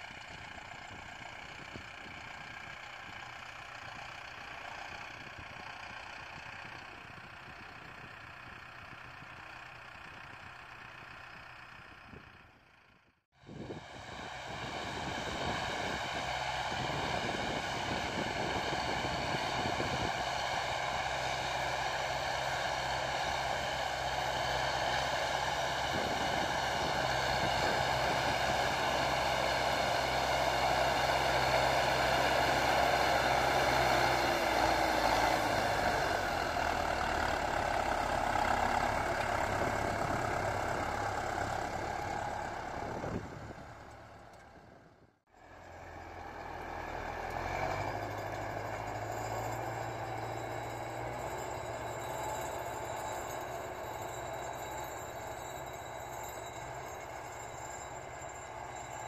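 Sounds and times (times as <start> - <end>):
machine engine hum and whine: 13.4 - 44.6.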